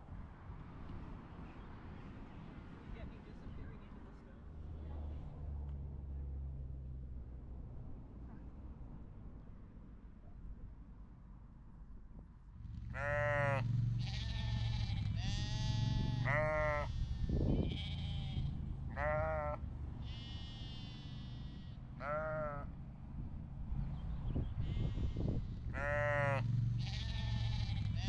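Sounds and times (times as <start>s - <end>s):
steady low rumble: 12.9s - 20.1s
sheep and lambs bleating: 12.9s - 22.7s, 24.6s - 28.0s.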